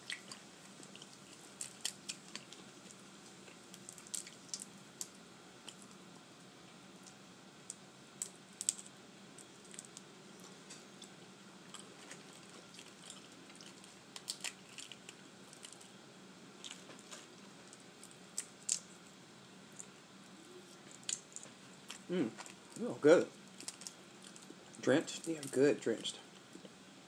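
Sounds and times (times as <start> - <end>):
wet squishes of peeling crawfish: 0.0 - 6.0, 7.0 - 10.0, 11.8 - 16.0, 16.6 - 19.0, 23.5 - 26.1.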